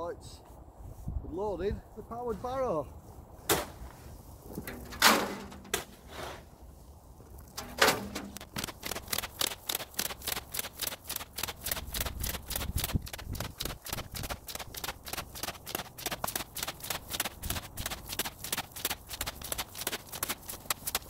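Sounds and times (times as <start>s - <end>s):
gravel tipping into metal skip: 4.5s - 6.5s, 7.4s - 9.1s
gravel shovelling clatters: 4.5s - 6.6s, 7.4s - 8.8s
shovel scraping gravel: 4.6s - 6.6s, 7.5s - 9.0s.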